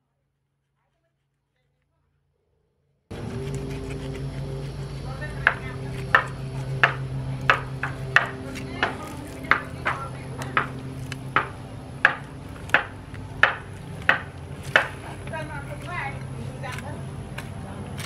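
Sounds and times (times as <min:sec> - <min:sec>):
knife sawing through fish fillet: 0:03.1 - 0:09.9
steady low hum: 0:03.1 - 0:18.0.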